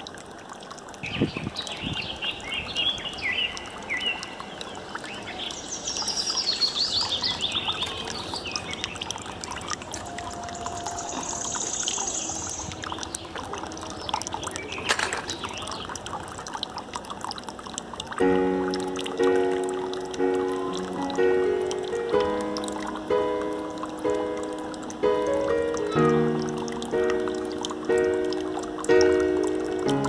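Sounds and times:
birds chirping: 1.0 - 16.6
water pouring into plastic tray: 5.9 - 30.0.

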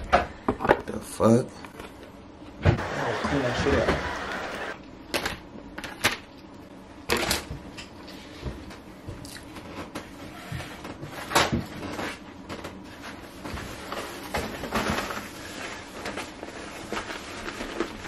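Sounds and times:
takeout containers being handled: 9.5 - 18.0.

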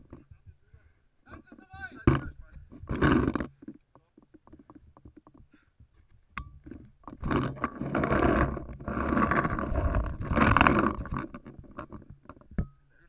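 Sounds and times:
cloth rubbing on microphone: 7.2 - 12.1.

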